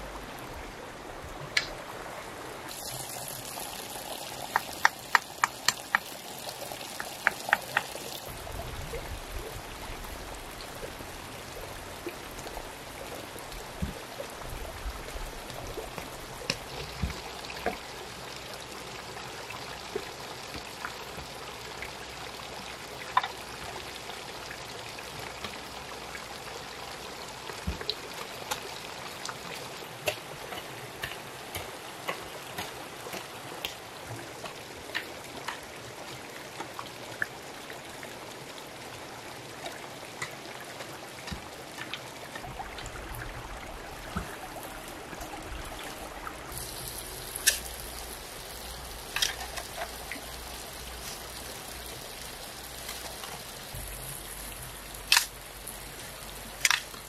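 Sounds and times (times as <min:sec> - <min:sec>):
water running: 0:02.6 - 0:18.2, 0:42.3 - 0:57.0.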